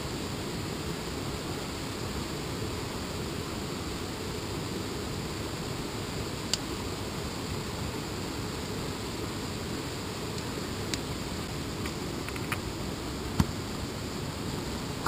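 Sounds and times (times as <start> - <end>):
kindling fire crackling: 6.1 - 9.3.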